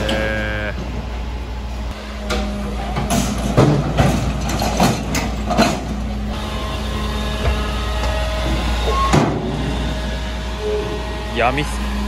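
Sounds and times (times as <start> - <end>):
garbage truck engine running: 0.0 - 12.0
trash bin knocks and clatters: 3.0 - 5.9.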